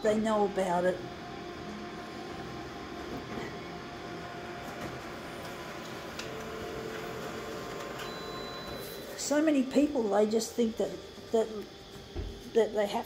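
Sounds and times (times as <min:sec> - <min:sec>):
copier running: 0:00.0 - 0:13.0
faint paper feed clicks: 0:05.8 - 0:07.1.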